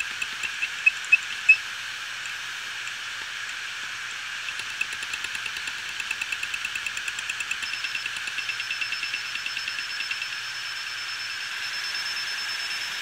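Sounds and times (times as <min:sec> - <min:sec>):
hard drive head ticking: 0:00.0 - 0:01.6, 0:02.2 - 0:10.6
sharp clicks: 0:00.0 - 0:01.6, 0:04.5 - 0:10.4
hard drive platter whirring: 0:00.0 - 0:13.0.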